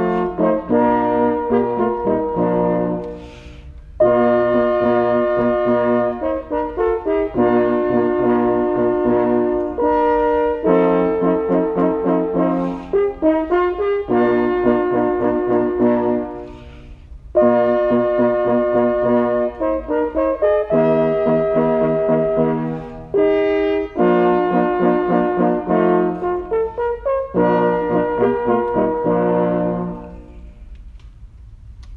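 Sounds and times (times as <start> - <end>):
french horns playing in harmony: 0.0 - 30.8.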